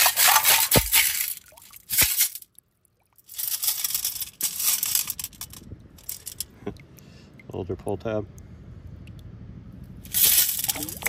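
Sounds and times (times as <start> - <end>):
pebbles rattling in metal scoop: 0.0 - 2.4, 3.3 - 6.5, 10.1 - 11.0.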